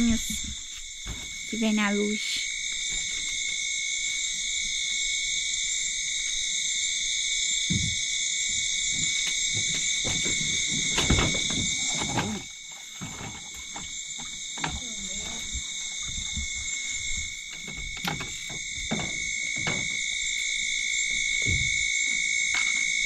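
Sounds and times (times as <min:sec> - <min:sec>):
insects and frogs calling: 0:00.0 - 0:23.0
handling knocks and rustles: 0:08.9 - 0:20.4.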